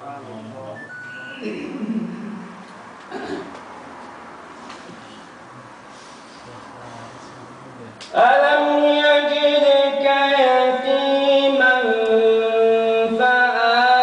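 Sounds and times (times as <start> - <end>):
man chanting recitation: 6.4 - 14.0.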